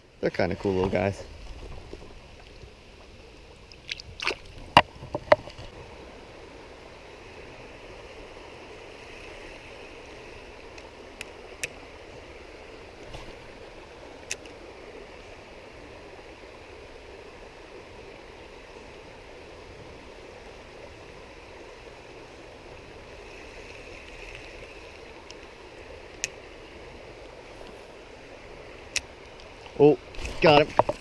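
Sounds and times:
stream rushing over rocks: 0.0 - 31.0
sharp knocks and clicks: 30.5 - 31.0.

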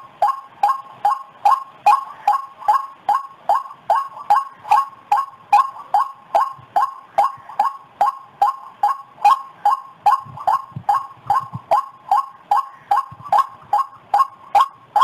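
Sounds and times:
waterhen calling: 0.0 - 15.0.

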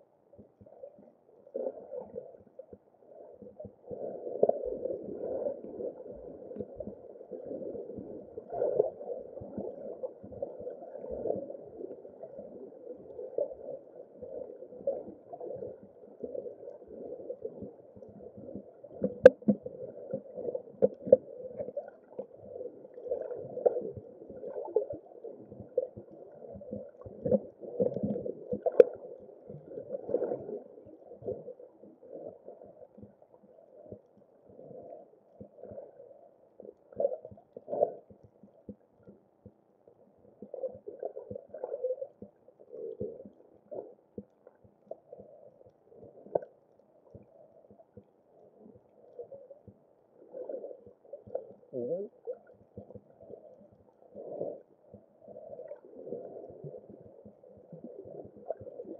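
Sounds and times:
underwater gurgling: 0.0 - 58.9.

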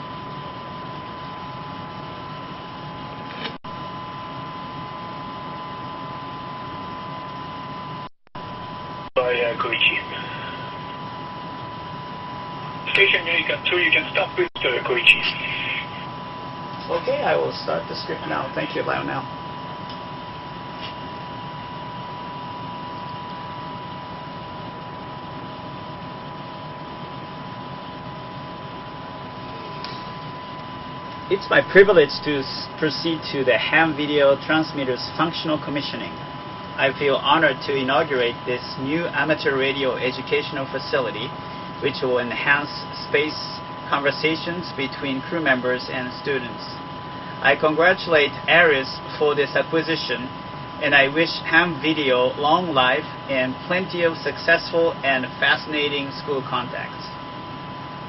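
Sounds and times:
ventilation fan hiss and hum: 0.0 - 58.0
steady high tone: 9.2 - 11.3, 12.8 - 19.3.

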